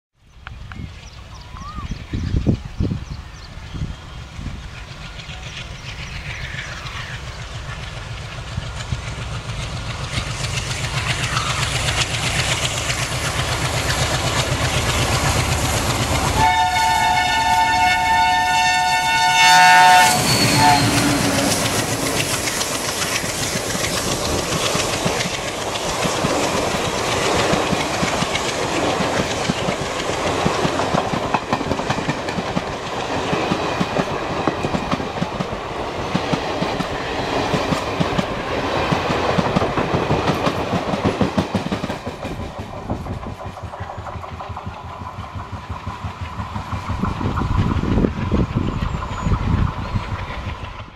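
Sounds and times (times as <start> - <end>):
diesel locomotive engine: 0.3 - 50.9
train wheels clattering over rail joints: 4.6 - 16.5, 20.2 - 50.9
two-note train horn: 16.3 - 21.6.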